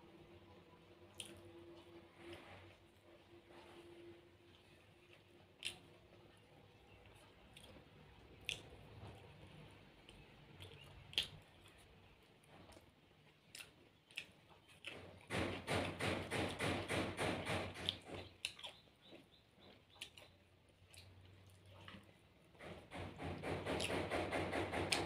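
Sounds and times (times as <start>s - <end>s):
wet chewing smacks: 4.6s - 6.2s, 7.0s - 9.2s, 10.0s - 15.3s, 17.8s - 22.2s
lip smacks and clicks: 5.5s - 6.0s, 7.5s - 9.0s, 10.0s - 11.8s, 13.5s - 15.1s.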